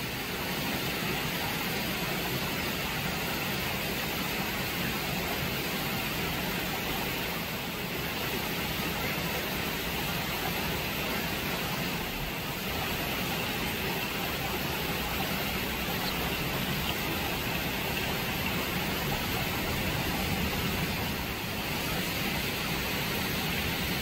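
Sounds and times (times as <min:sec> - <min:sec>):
stream water running over rocks: 0:00.0 - 0:24.0.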